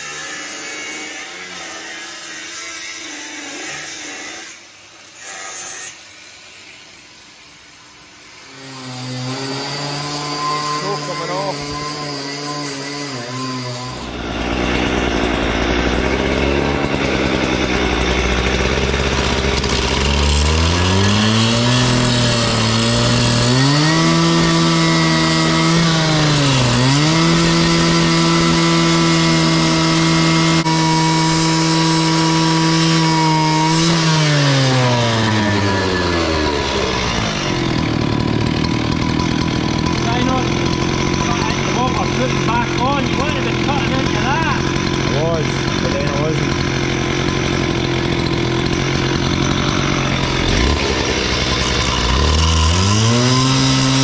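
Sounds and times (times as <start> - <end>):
cut-off saw cutting steel: 0.0 - 54.0.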